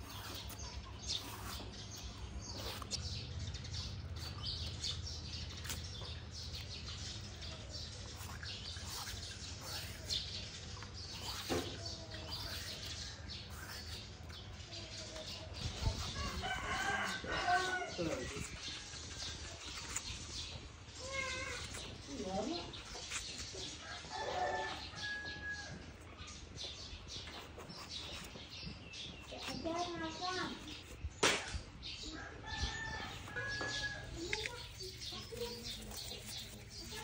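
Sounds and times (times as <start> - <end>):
peeler scraping gourd skin: 0.0 - 25.7, 26.8 - 31.6, 32.9 - 37.0
rooster crowing: 16.3 - 18.2.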